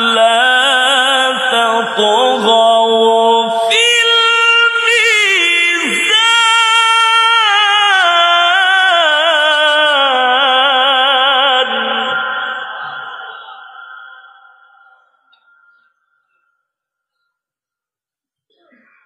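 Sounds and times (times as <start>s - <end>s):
man reciting melodically: 0.0s - 16.4s.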